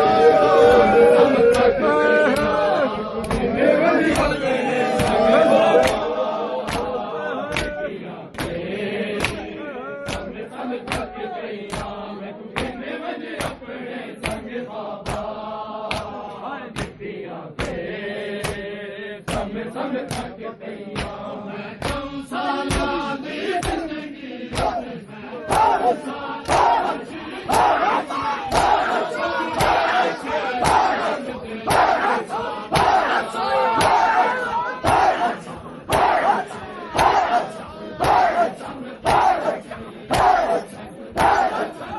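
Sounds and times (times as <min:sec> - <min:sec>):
men chanting in unison: 0:00.0 - 0:41.9
palms slapping bare chests: 0:13.4 - 0:13.6, 0:14.2 - 0:16.2, 0:23.6 - 0:23.9, 0:24.5 - 0:24.8, 0:25.5 - 0:40.6, 0:41.2 - 0:41.8.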